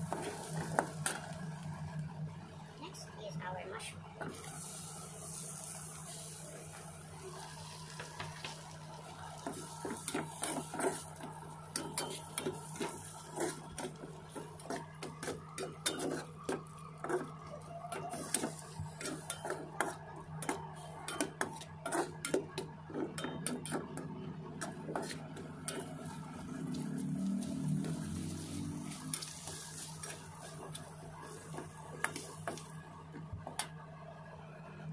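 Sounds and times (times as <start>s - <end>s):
frying hiss: 0.0s - 2.0s, 4.2s - 33.7s
metal spatula scraping wok: 9.3s - 32.7s.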